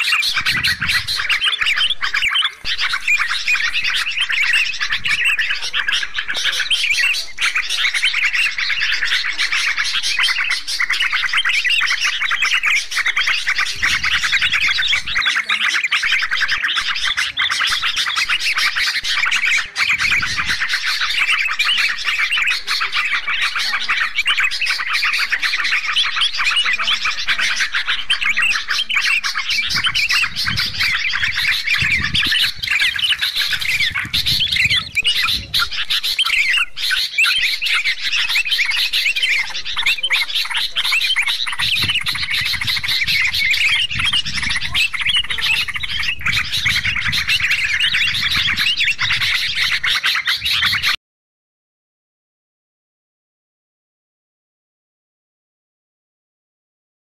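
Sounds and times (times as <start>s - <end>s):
bulbuls chattering: 0.0s - 51.0s.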